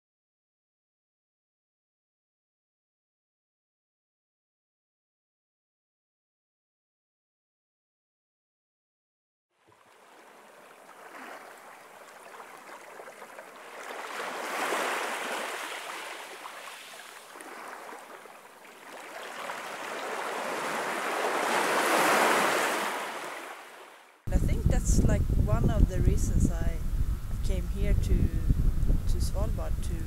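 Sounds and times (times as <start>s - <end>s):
surf washing on shore: 9.7s - 25.1s.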